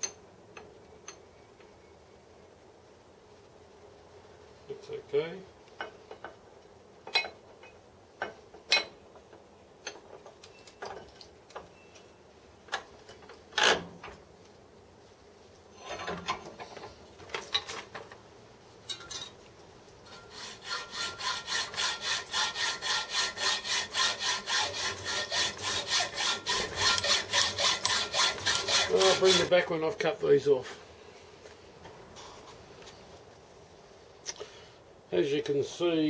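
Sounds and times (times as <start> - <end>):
hacksaw cutting metal: 20.1 - 29.6.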